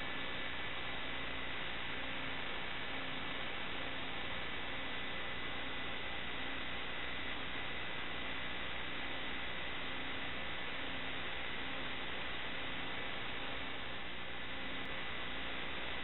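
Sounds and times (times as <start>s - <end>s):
faint hum: 0.0s - 16.0s.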